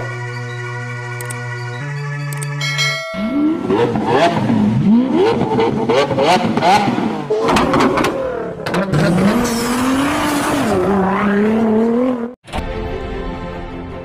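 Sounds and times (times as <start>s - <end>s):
sports car engine revving: 3.4s - 12.3s.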